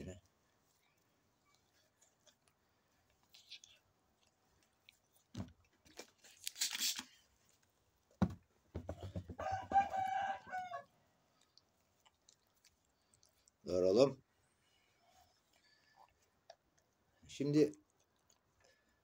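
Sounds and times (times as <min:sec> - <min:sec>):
brief rustling hiss: 0:06.4 - 0:07.2
soft thumps: 0:08.2 - 0:09.4
rooster crowing: 0:09.4 - 0:10.9.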